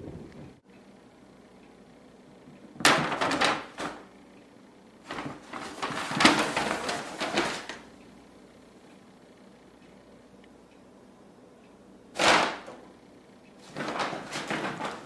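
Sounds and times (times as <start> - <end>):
grocery bag rustling and crinkling: 5.1 - 7.8.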